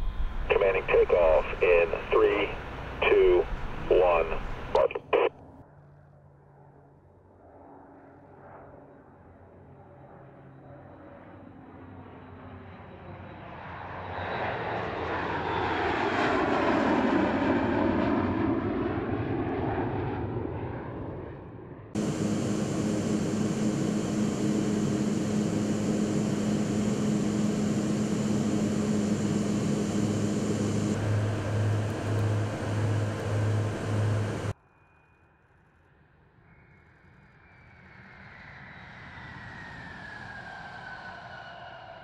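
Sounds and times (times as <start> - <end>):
jet engine passing: 0.0 - 5.3, 22.0 - 34.6
aircraft engine drone: 0.0 - 6.8, 22.0 - 34.6
low pulsing throb: 22.0 - 34.5.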